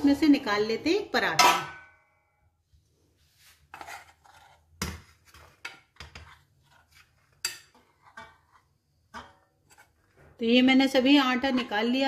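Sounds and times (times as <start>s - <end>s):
metal spoon scraping saucepan: 3.7s - 10.2s.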